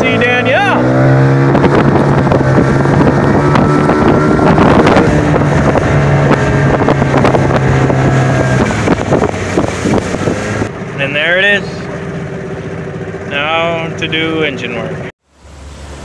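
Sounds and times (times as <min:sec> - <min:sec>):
wind on microphone: 0:00.0 - 0:10.8
outboard motor running: 0:00.0 - 0:16.0.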